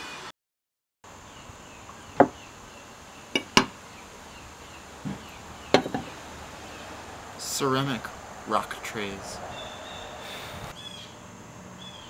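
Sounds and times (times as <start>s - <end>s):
hard objects knocking: 2.2s - 2.4s, 3.4s - 3.8s, 5.0s - 6.2s.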